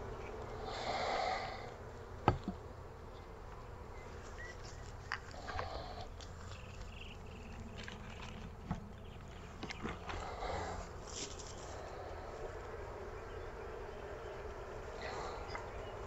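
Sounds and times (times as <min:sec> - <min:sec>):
bees buzzing: 0:09.0 - 0:16.0.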